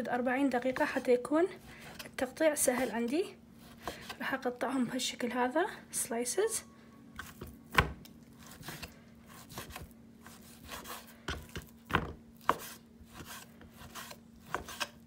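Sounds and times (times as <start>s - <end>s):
faint steady hum: 0.0s - 15.0s
knife slicing steak on wooden board: 8.4s - 11.7s, 12.4s - 15.0s.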